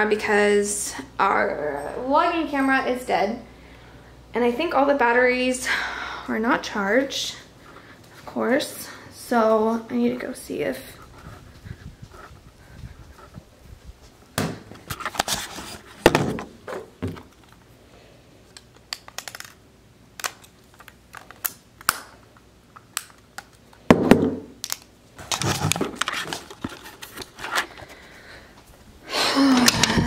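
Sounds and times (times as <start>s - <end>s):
handling bumps and rustles: 11.1s - 17.6s.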